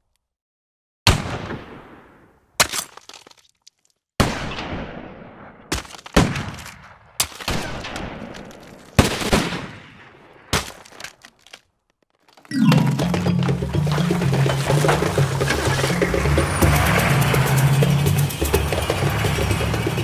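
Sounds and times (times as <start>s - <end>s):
echoing gunshots: 4.2s - 10.6s.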